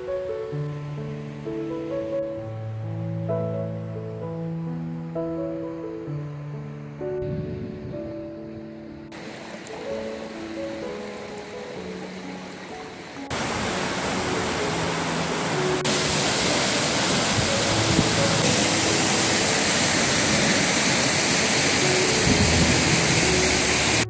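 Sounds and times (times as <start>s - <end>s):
soft background music: 0.0s - 24.0s
waterfall rushing: 9.1s - 24.0s.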